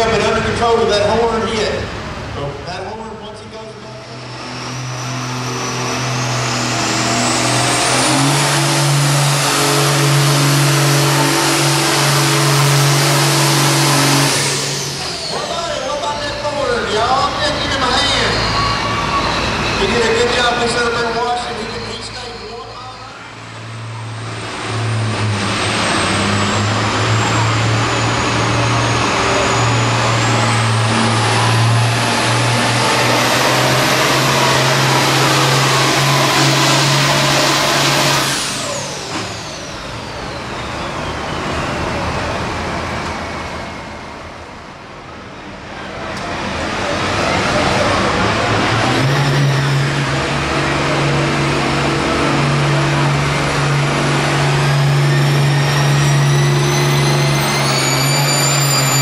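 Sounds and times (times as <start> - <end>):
tractor diesel engine at full throttle: 0.0 - 59.0
thin high turbo whistle: 17.8 - 20.4, 54.6 - 59.0
faint high whistle: 18.1 - 20.1.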